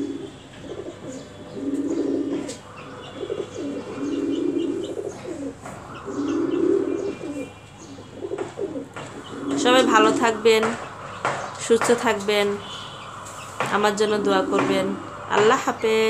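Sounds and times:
pigeon cooing: 0.0s - 11.0s
faint bird chirps: 0.0s - 11.7s, 12.5s - 13.6s.

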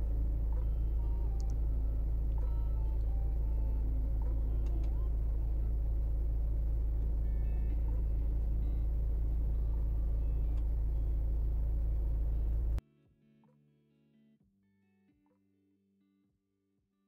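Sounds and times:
faint held tones: 0.0s - 12.8s
low hum: 0.0s - 12.8s.

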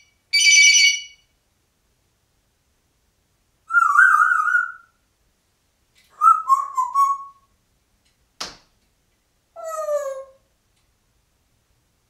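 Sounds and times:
parrot chirping notes: 3.7s - 5.0s, 6.1s - 7.5s
parrot whistling: 3.7s - 5.0s, 6.1s - 7.5s.

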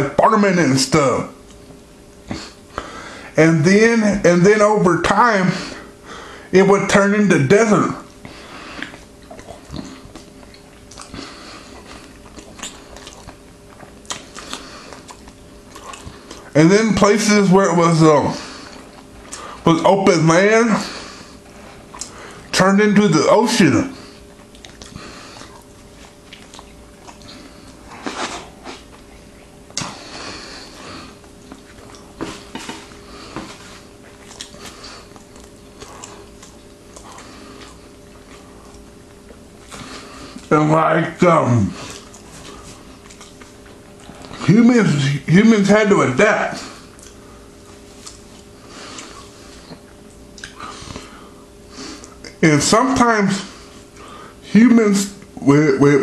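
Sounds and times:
person eating: 8.0s - 16.6s, 18.2s - 19.6s, 20.7s - 22.6s, 23.2s - 40.5s, 41.5s - 44.6s, 46.5s - 52.4s
person chewing food: 8.1s - 16.5s, 18.4s - 19.6s, 20.9s - 22.5s, 24.0s - 40.5s, 41.8s - 44.5s, 46.6s - 52.4s
mouth clicks and smacks: 11.8s - 16.5s, 21.9s - 22.2s, 24.4s - 30.0s, 47.0s - 47.2s, 49.7s - 51.1s.

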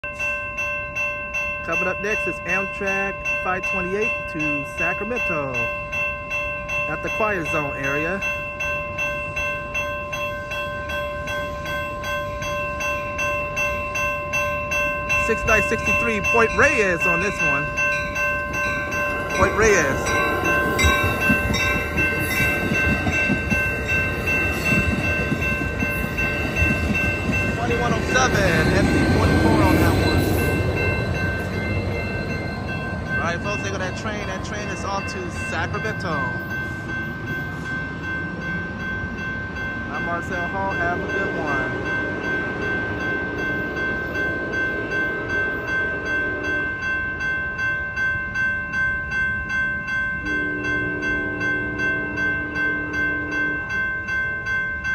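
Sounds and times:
crossing warning bell ringing: 0.0s - 54.9s
train rumbling: 0.0s - 54.9s.

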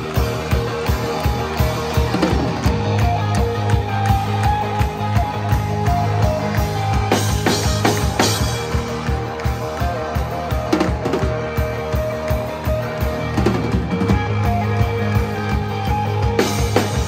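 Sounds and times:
drum kit beat: 0.0s - 17.0s
electric guitar: 0.0s - 17.0s.

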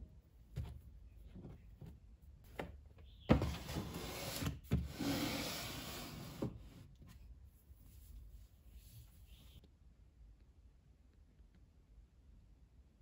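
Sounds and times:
plastic bin scraping on shelf: 3.3s - 6.8s.

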